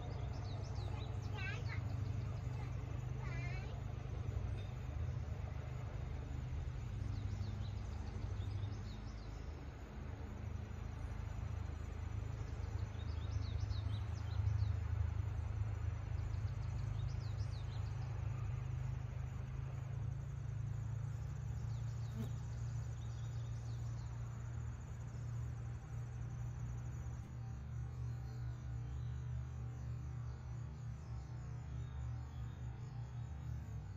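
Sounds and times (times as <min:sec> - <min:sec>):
birds chirping: 0:00.0 - 0:03.8.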